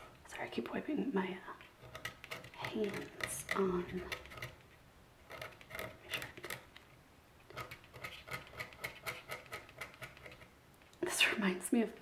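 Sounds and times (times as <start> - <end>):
stylus scraping scratch board: 7.5 - 10.5.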